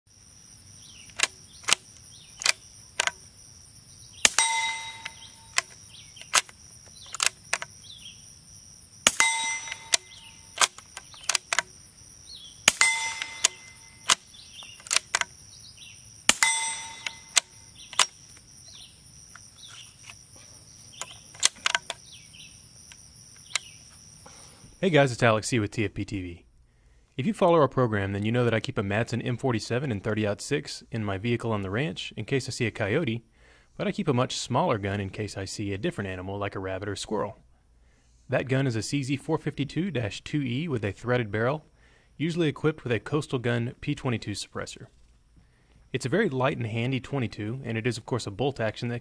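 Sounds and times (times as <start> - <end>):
insects chirping: 0.1 - 49.0
sharp metallic clicks: 1.0 - 3.3, 4.2 - 7.7, 9.0 - 11.8, 12.6 - 15.3, 16.3 - 20.2, 21.0 - 22.0
suppressed rifle shots: 4.2 - 7.6, 9.0 - 11.6, 12.7 - 15.2, 16.3 - 18.2
steel target ringing ding: 4.3 - 5.5, 9.1 - 10.4, 12.7 - 14.0, 16.3 - 17.4.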